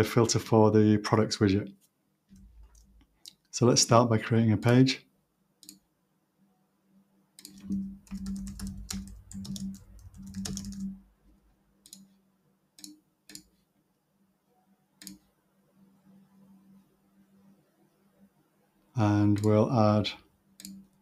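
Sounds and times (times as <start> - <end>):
separate clicks: 5.6 - 5.8, 7.4 - 8.2, 11.8 - 12.1, 12.8 - 13.6, 15.0 - 15.3, 20.6 - 21.0
computer keyboard typing: 7.4 - 11.0.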